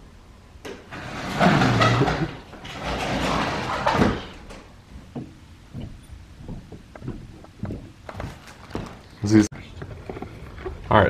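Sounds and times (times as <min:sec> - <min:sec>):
sliding glass door rolling: 0:00.8 - 0:04.8.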